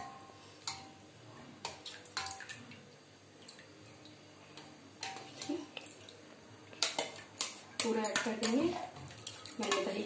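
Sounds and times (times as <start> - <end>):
soft wet stirring: 0.0 - 10.0
spoon clicking on metal pot: 6.8 - 8.7.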